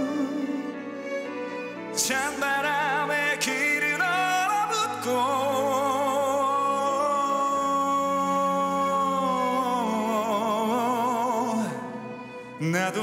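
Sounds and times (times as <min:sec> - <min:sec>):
man singing long note: 0:00.0 - 0:00.8
ballad backing music: 0:00.0 - 0:13.0.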